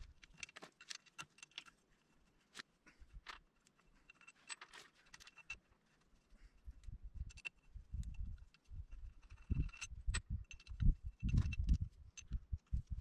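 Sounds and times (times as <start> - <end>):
metallic clinks of bolts and wrench: 7.3 - 12.4.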